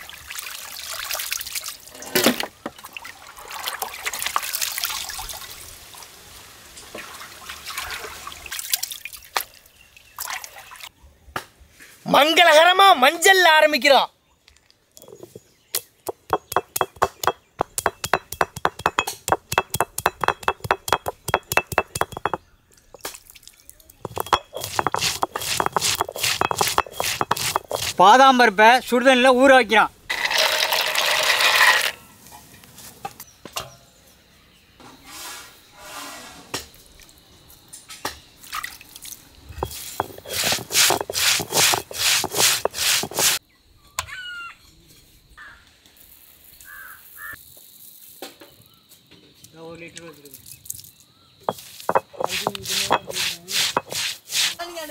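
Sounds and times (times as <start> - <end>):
knocks and clicks: 15.0 - 22.4, 24.0 - 28.0, 39.6 - 43.4, 51.5 - 54.0
stone pounding on stone: 15.0 - 23.1, 24.0 - 28.0, 39.6 - 43.4, 51.5 - 54.5.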